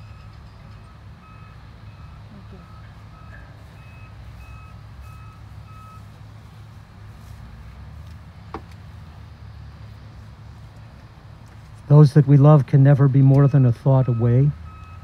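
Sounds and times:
reversing alarm beeps: 0:00.0 - 0:06.1, 0:13.4 - 0:15.0
low engine rumble: 0:00.0 - 0:15.0.

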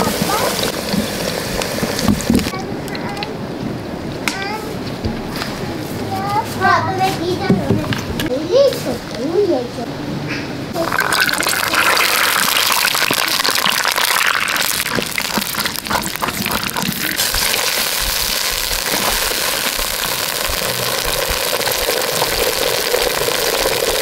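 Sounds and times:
peas pouring into water: 0:10.8 - 0:24.0.

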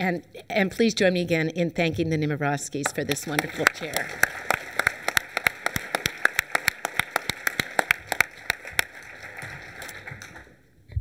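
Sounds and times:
close loud hand clapping: 0:02.9 - 0:10.6
audience applauding: 0:03.0 - 0:10.6.

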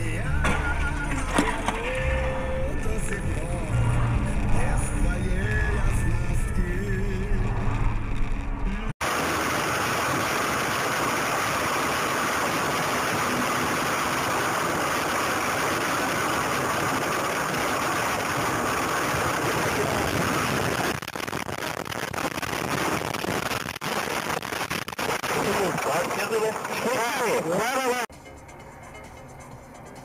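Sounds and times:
car road and engine noise: 0:00.0 - 0:30.0
car crash knocks and clatters: 0:00.4 - 0:02.0.

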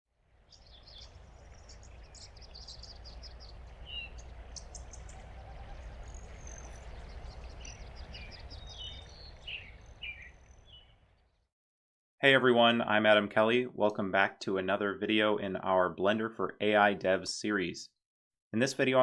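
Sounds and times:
birds chirping: 0:00.3 - 0:11.5.

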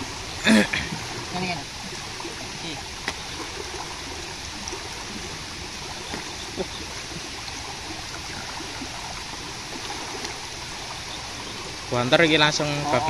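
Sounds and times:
water rushing through channel: 0:00.0 - 0:13.0.

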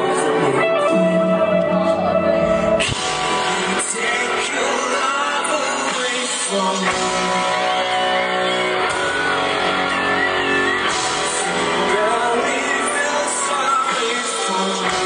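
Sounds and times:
live band music: 0:00.0 - 0:15.0
man singing: 0:01.8 - 0:08.5, 0:11.2 - 0:15.0.

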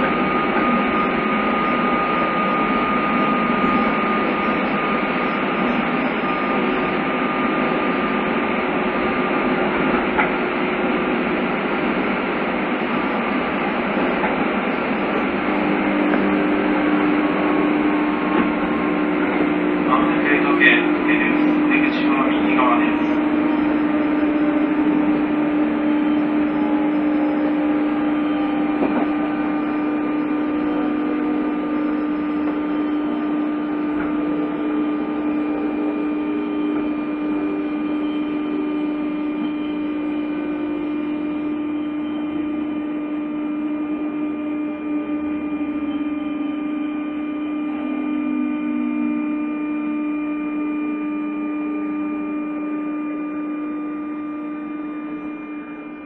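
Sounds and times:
electrical hum: 0:00.0 - 0:56.0
train motor whine: 0:00.0 - 0:56.0.

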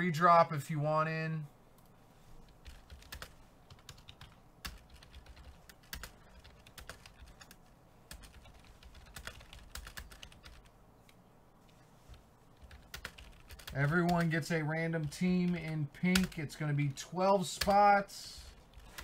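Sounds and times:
computer keyboard typing: 0:02.5 - 0:10.7, 0:12.6 - 0:14.4, 0:15.0 - 0:16.4, 0:18.7 - 0:19.0.

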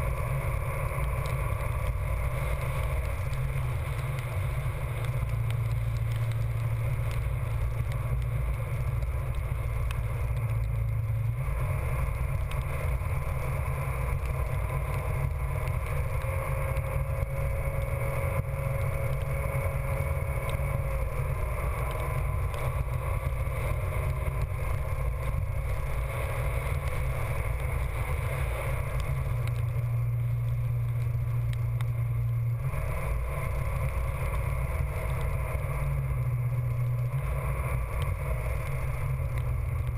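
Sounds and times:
wheels running over wet ground: 0:00.0 - 0:39.9.

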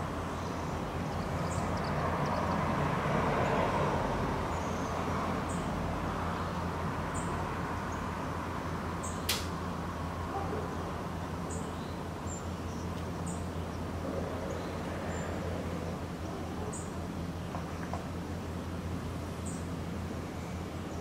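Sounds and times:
outdoor background noise: 0:00.0 - 0:21.0
sharp click: 0:09.2 - 0:09.6.

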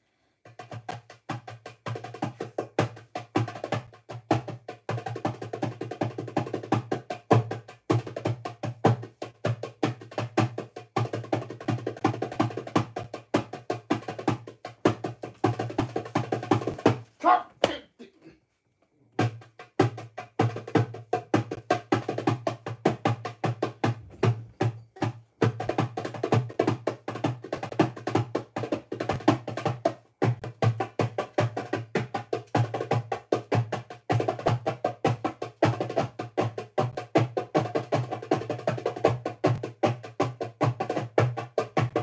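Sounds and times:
drums fast sharp strikes: 0:19.2 - 0:31.0.

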